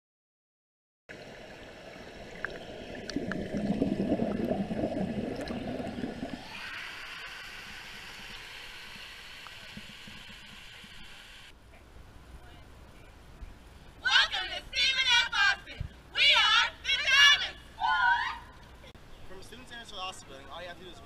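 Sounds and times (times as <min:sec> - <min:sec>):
water bubbling and gurgling: 0:01.1 - 0:11.2
steady hiss: 0:05.7 - 0:17.9.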